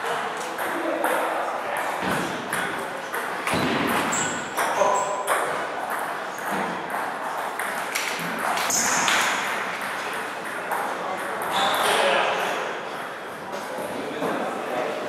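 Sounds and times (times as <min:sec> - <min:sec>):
table tennis balls clicking: 0:00.1 - 0:11.9.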